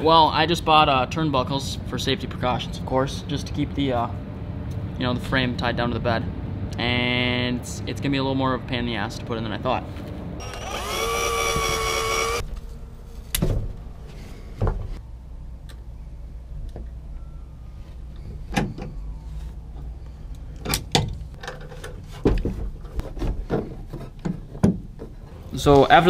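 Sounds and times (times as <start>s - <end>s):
low steady hum: 0.0s - 23.0s
cordless drill whining: 10.4s - 12.4s.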